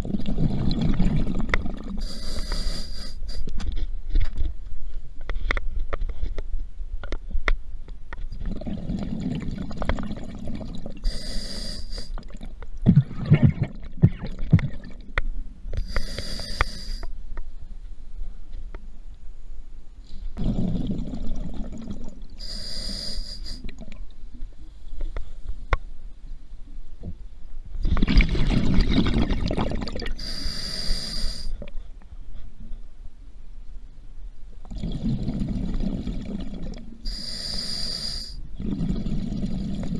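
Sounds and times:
exhaled bubbles rumbling: 0.0 - 2.1, 8.3 - 11.1, 12.2 - 15.2, 20.4 - 22.4, 27.8 - 30.4, 34.7 - 37.4, 38.6 - 39.9
hissing regulator inhale: 2.0 - 3.5, 11.0 - 12.2, 15.8 - 17.1, 22.4 - 23.7, 30.2 - 31.6, 37.1 - 39.6.

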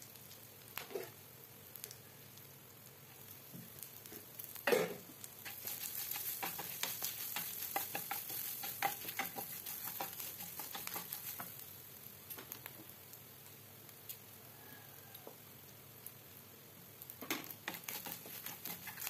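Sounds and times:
spices sizzling in a pan: 0.0 - 19.0
wooden spatula scraping a pan: 5.4 - 11.6, 17.6 - 19.0.

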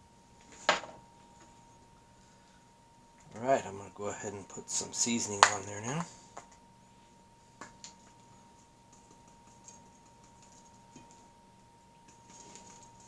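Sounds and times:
faint steady tone: 0.0 - 13.0
seasoning shaker clicks and taps: 8.9 - 11.3.

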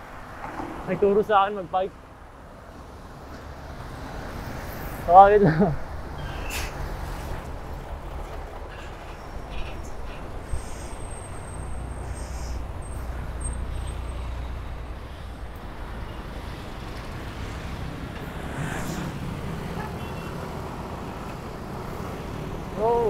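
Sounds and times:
low rumble of road traffic: 0.0 - 23.0
motor vehicle engine passing: 10.6 - 22.7.

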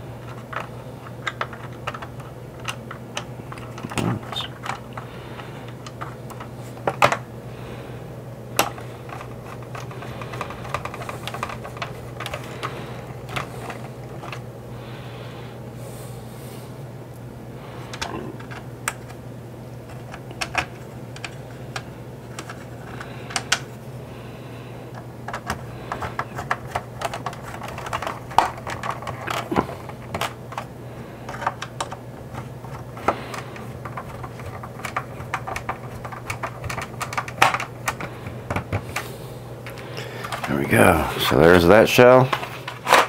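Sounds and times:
screwdriver clicking in plastic: 0.2 - 5.1, 8.6 - 14.4, 19.9 - 23.6, 24.9 - 30.7, 31.3 - 38.8.

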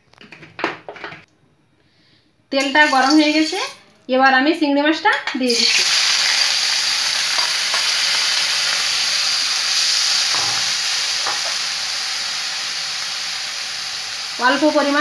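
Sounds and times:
shrimp sizzling in hot oil: 5.5 - 15.0.

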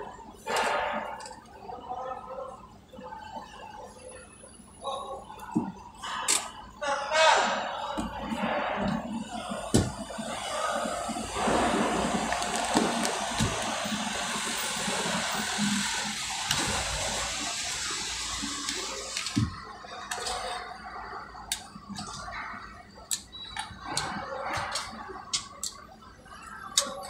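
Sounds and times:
vehicles rushing and humming: 8.3 - 19.4
scattered clicks: 23.1 - 25.8, 26.7 - 27.0.

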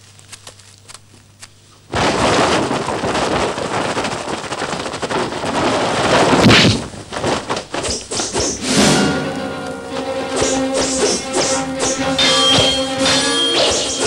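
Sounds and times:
loud crackling rush of noise: 1.9 - 11.9.

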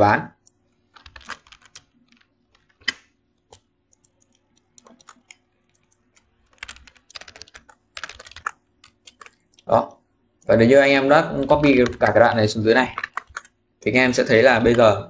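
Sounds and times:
typing on computer keyboard: 0.4 - 9.7, 11.4 - 12.2, 13.0 - 13.6.

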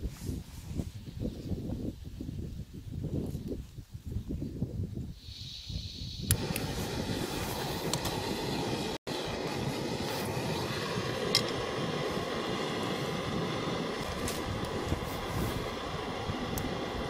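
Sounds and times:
gas stove burner roaring: 6.1 - 17.0.

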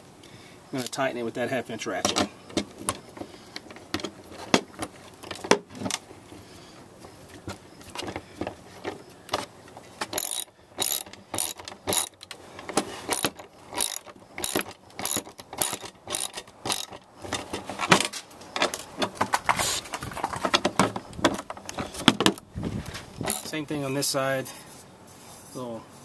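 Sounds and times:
ratchet pawl clicks: 10.1 - 12.4, 13.1 - 17.5, 23.2 - 23.6.

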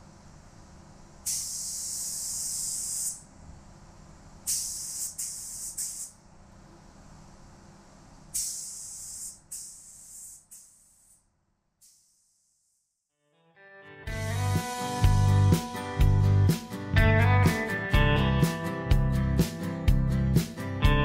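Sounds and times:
spray gun hissing: 1.2 - 3.2, 4.5 - 6.2, 8.3 - 11.2, 11.8 - 12.8.

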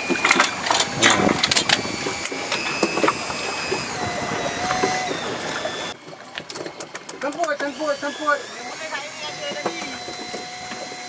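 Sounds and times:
faint steady whine: 0.0 - 6.4
boat running on choppy sea: 0.0 - 11.0.

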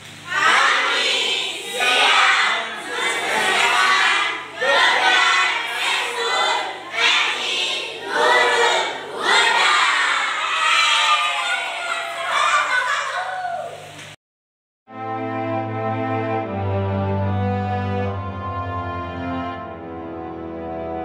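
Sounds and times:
children singing in unison: 0.3 - 10.4.

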